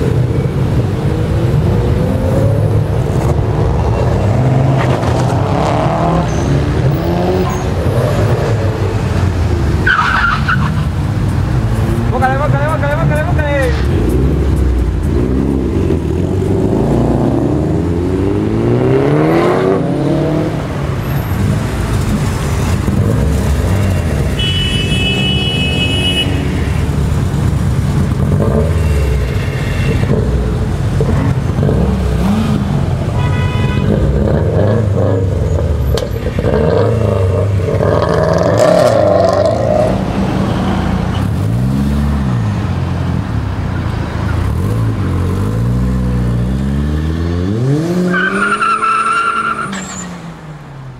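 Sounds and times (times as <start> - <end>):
cars accelerating and revving: 0.0 - 50.9
car horn: 23.8 - 26.9, 28.6 - 30.4, 33.1 - 34.2.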